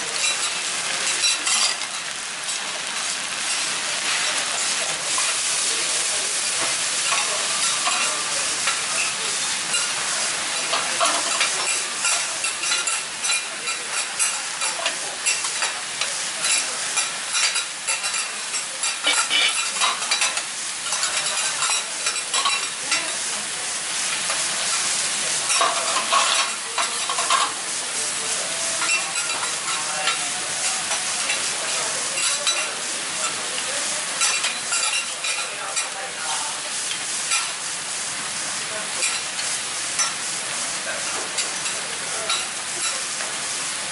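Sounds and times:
noodles sizzling on a griddle: 0.0 - 43.9
metal spatulas scraping griddle: 18.9 - 23.0, 25.4 - 27.6.

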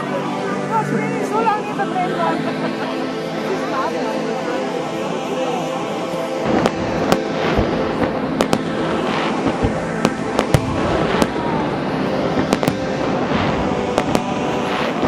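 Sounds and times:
fireworks crackling: 0.0 - 15.0
fireworks bangs: 6.4 - 15.0.

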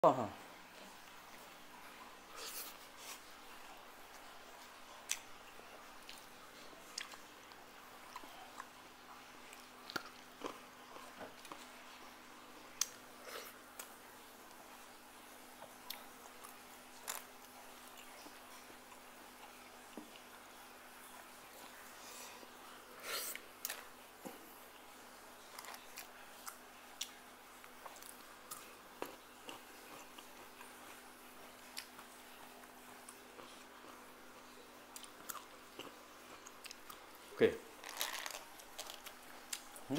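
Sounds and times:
chewing: 0.8 - 14.8, 15.6 - 20.4, 25.4 - 39.9
chewing clicks and smacks: 6.9 - 8.8, 31.7 - 37.0.

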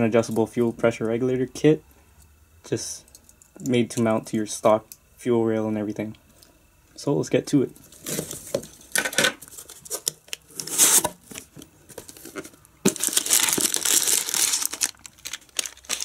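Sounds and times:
packing paper rustling: 7.9 - 16.0.

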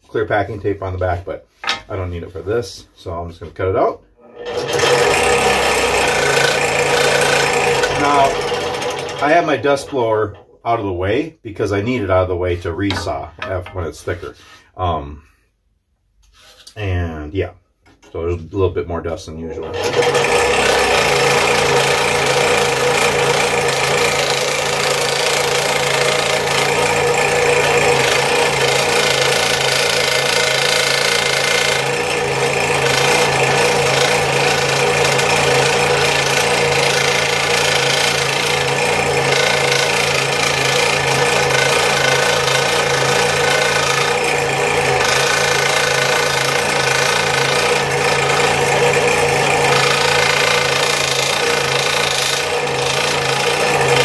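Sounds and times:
scroll saw cutting wood: 4.2 - 10.4, 19.6 - 54.0.

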